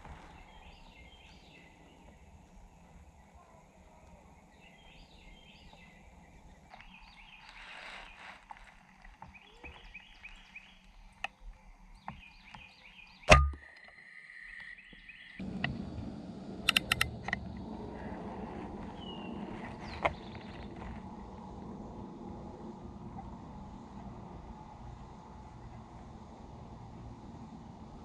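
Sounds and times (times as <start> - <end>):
birds chirping: 0.0 - 15.6, 18.8 - 21.0
quick sharp clicks: 16.7 - 17.4.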